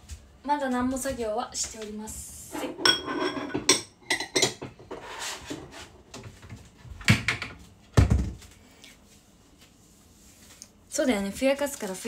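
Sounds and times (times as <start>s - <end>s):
dishes and utensils clinking: 2.6s - 4.9s.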